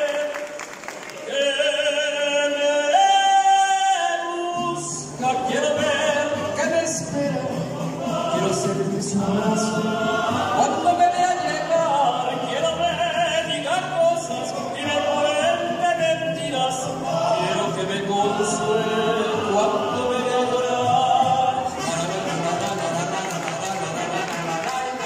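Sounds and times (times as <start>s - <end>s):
group singing: 1.2s - 25.0s
guitar accompaniment: 2.5s - 25.0s.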